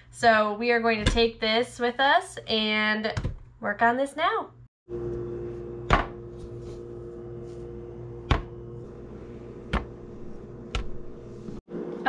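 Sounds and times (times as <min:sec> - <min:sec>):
steady hum: 0:04.9 - 0:11.9.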